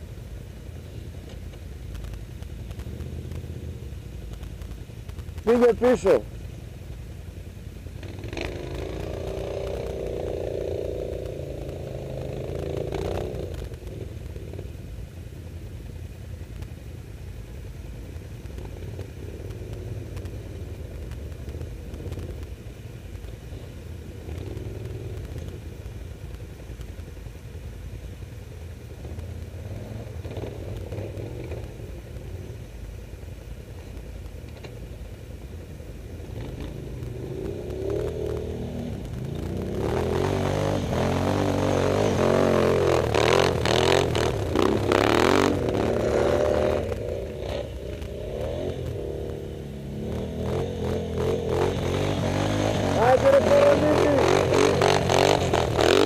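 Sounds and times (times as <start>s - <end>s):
quad engines revving: 8.0s - 14.6s, 29.0s - 32.4s, 36.3s - 56.0s.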